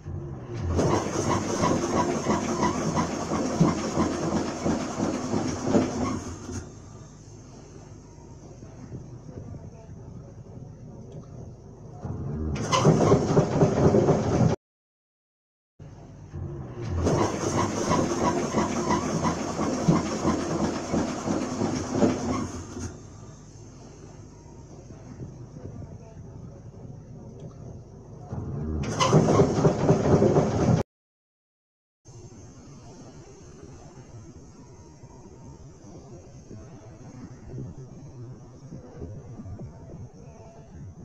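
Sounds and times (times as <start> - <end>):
steam engine chuffing: 0.1 - 9.5, 12.4 - 14.6, 16.3 - 25.8, 28.8 - 30.8.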